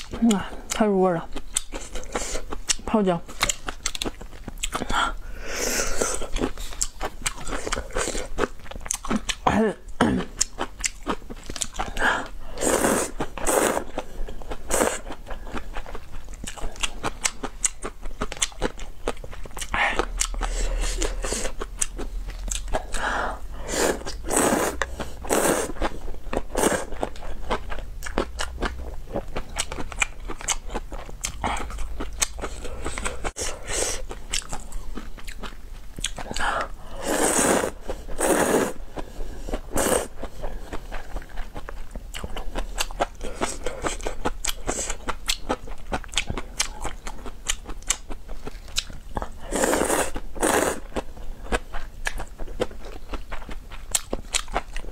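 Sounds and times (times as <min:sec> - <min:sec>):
wet chewing: 0:00.0 - 0:05.0, 0:05.8 - 0:09.5, 0:10.2 - 0:23.1, 0:23.7 - 0:54.9
noodle slurping: 0:12.5 - 0:14.0, 0:23.6 - 0:25.9, 0:37.0 - 0:38.8, 0:39.6 - 0:40.2, 0:49.4 - 0:50.9.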